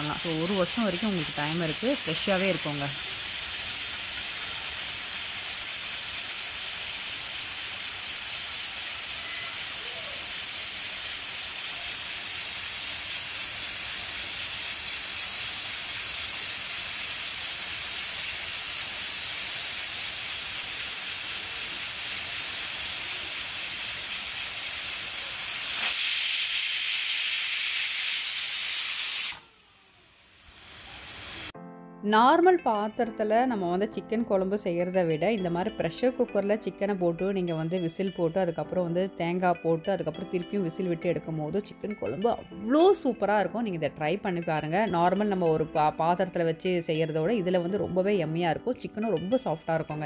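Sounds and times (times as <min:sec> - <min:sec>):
pressure cooker whistle: 0:00.0 - 0:31.5
pressure cooker hissing: 0:00.0 - 0:31.6.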